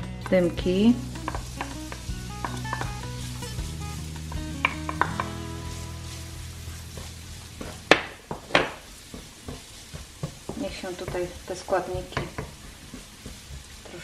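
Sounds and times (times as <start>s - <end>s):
background music with sustained notes: 0.0s - 8.1s
garlic sizzling in hot oil: 0.0s - 14.0s
spatula knocking: 1.1s - 5.4s, 6.9s - 14.0s.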